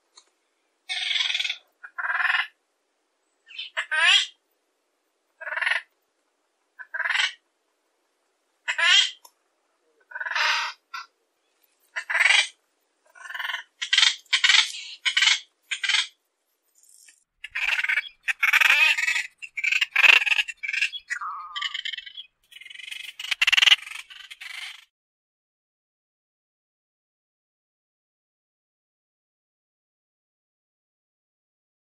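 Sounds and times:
seabird calling: 0:17.4 - 0:24.6.

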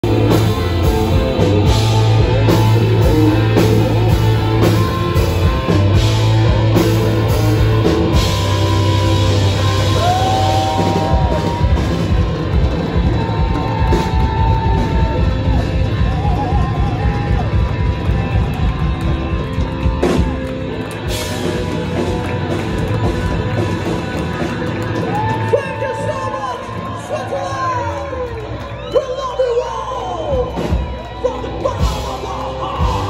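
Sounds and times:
hard rock band playing live: 0:00.0 - 0:33.0
person singing: 0:31.2 - 0:33.0.

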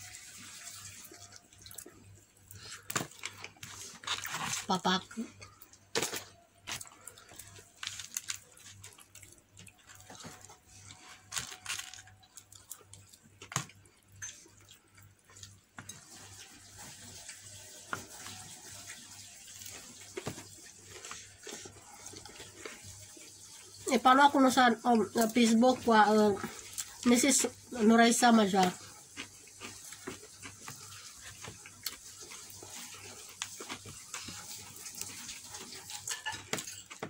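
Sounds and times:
chewing fried chicken: 0:00.0 - 0:23.9, 0:25.0 - 0:37.0
crispy coating tearing: 0:02.7 - 0:04.9, 0:06.0 - 0:09.4, 0:10.9 - 0:12.8.

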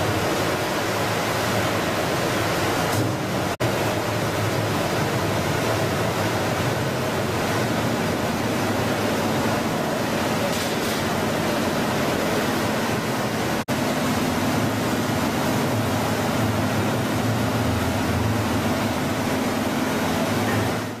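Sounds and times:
churning water rushing: 0:00.0 - 0:21.0.

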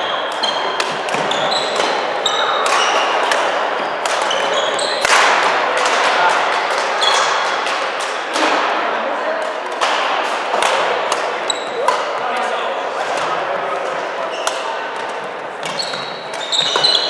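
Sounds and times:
shoes squeaking on court: 0:00.0 - 0:05.1, 0:11.4 - 0:12.2, 0:14.2 - 0:17.0
rackets hitting shuttlecocks: 0:00.2 - 0:08.8, 0:09.4 - 0:17.0.

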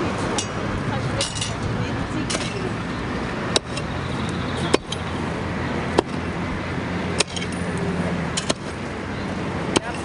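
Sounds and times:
pickaxe striking gravel: 0:07.2 - 0:07.6, 0:08.4 - 0:08.8.

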